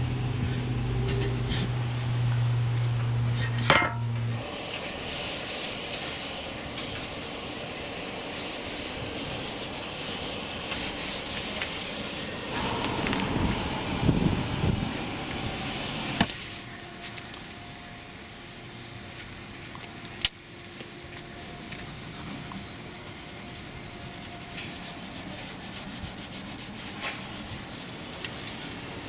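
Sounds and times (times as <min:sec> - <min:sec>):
steady low hum: 0:00.0 - 0:29.0
cloth rubbing on plastic: 0:22.9 - 0:27.7.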